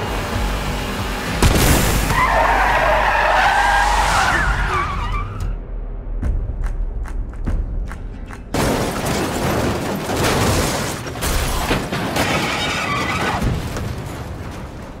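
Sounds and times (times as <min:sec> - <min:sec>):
car crash impacts: 0:08.6 - 0:15.0.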